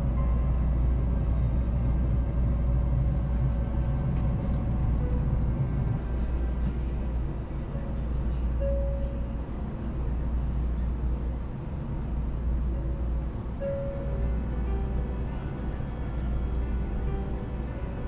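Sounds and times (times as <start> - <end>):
train rumbling at speed: 0.0 - 18.0.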